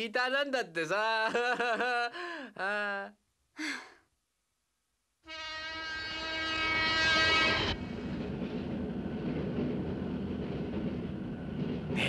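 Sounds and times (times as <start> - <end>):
train horn: 5.2 - 7.8
train rumbling and clattering: 7.2 - 12.0.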